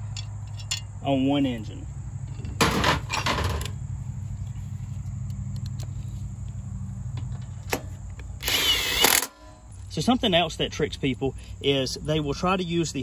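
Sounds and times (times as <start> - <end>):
bolts clattering on metal tray: 2.4 - 3.7.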